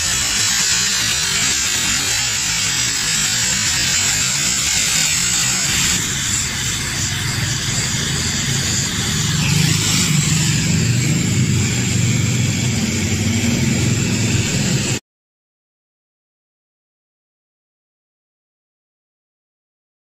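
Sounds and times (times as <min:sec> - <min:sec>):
steady rushing roar: 0:00.0 - 0:15.0
low rumble: 0:06.0 - 0:15.0.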